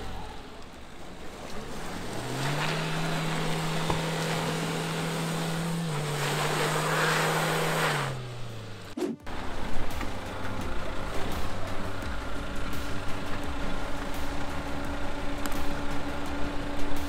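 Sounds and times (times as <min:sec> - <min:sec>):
diesel engine revving: 0:00.0 - 0:17.0
tyres rushing in wet mud: 0:00.0 - 0:17.0.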